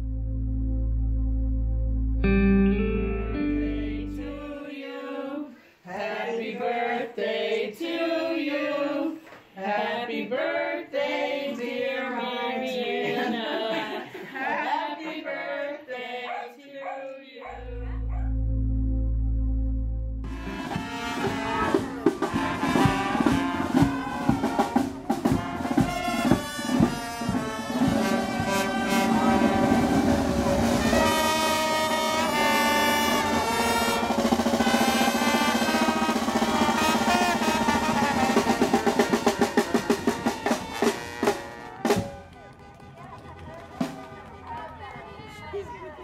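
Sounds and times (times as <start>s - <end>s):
street band playing: 2.2s - 4.6s, 20.2s - 46.0s
trumpets and trombone: 20.2s - 45.2s
snare and bass drum: 20.3s - 44.3s.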